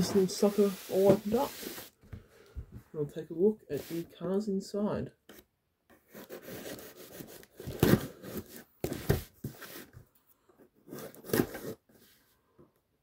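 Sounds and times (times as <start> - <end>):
cardboard tearing and scraping: 6.1 - 9.2.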